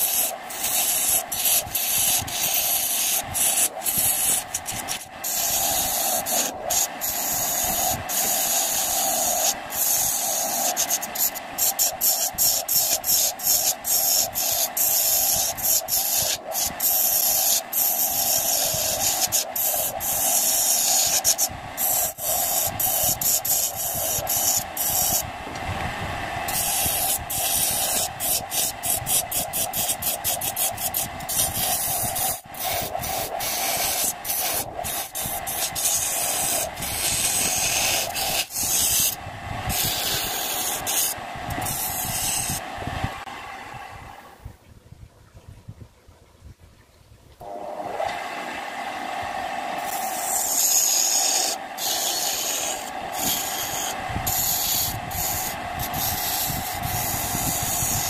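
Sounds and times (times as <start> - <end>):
chisel scraping spinning wood: 0.0 - 25.6, 26.4 - 42.6, 49.8 - 58.0
wood lathe humming: 0.0 - 42.8, 47.4 - 58.0.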